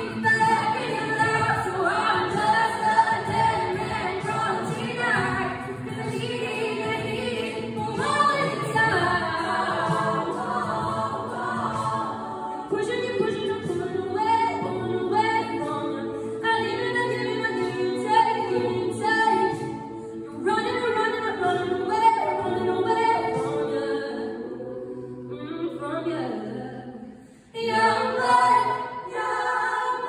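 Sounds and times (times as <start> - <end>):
a cappella group singing in harmony: 0.0 - 30.0.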